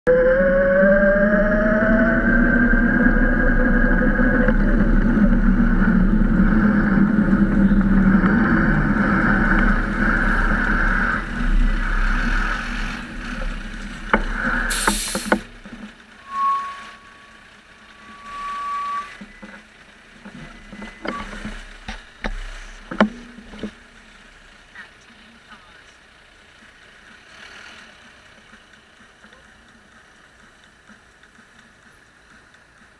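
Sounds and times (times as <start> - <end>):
wind noise: 0.1 - 15.9
steady squeal: 0.1 - 24.6
traffic noise: 0.1 - 32.9
short sharp hiss: 14.7 - 15.4.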